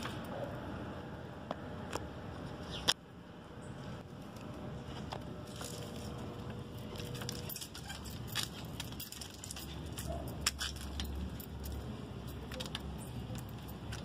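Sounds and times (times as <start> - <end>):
low steady rumble: 0.0 - 14.0
bicycle rattling over stone paving: 5.0 - 14.0.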